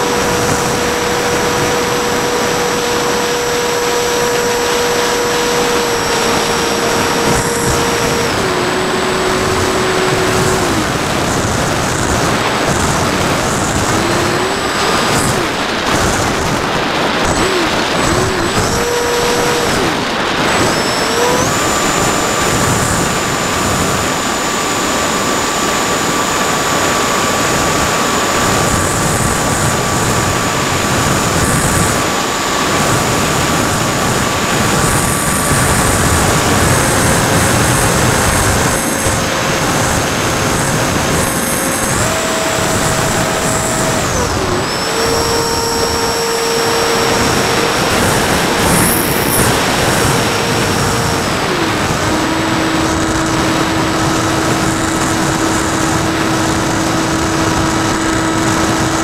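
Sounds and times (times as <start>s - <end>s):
thin electric motor whine: 0.0s - 59.0s
wind rush over airframe: 0.0s - 59.0s.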